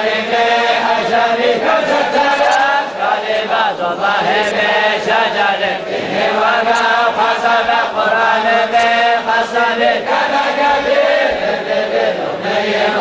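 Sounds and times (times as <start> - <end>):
unaccompanied vocal chanting: 0.0 - 13.0.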